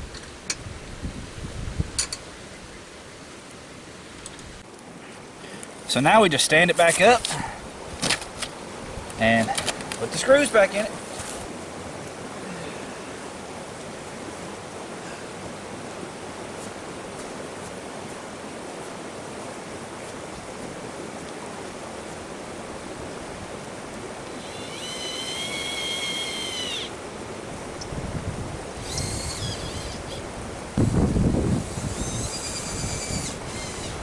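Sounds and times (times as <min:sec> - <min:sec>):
rushing wind: 0:00.0 - 0:34.0
cordless drill whining: 0:28.8 - 0:30.2, 0:31.6 - 0:34.0.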